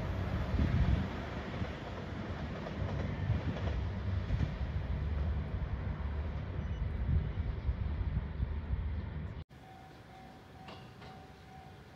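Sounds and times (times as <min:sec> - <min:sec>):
diesel train rumbling: 0:00.0 - 0:11.9.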